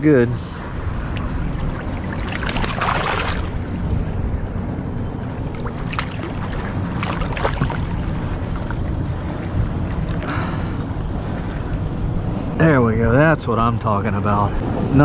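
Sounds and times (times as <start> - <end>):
wind rumble on microphone: 0.0 - 15.0
fish splashing at the surface: 1.1 - 3.6, 5.6 - 8.7.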